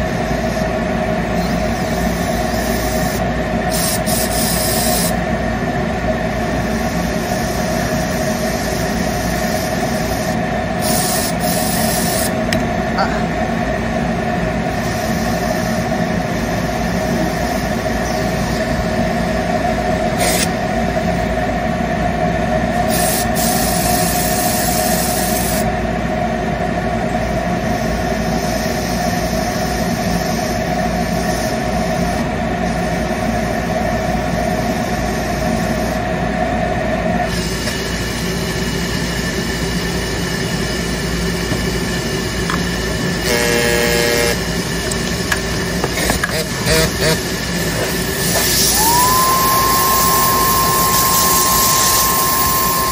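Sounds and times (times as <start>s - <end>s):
machine motor hum: 41.4s - 52.9s
held machine tone: 43.2s - 44.6s, 47.8s - 52.9s.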